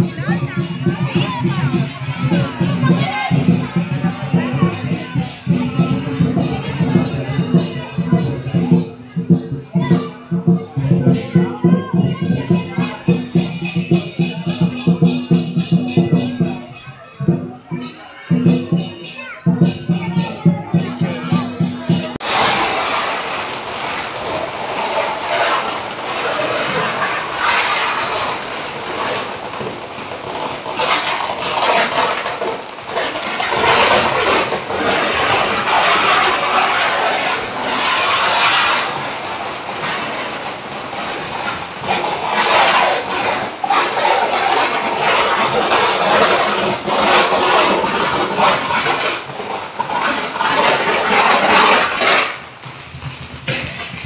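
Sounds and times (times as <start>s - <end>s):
firecrackers crackling: 0.0s - 54.0s.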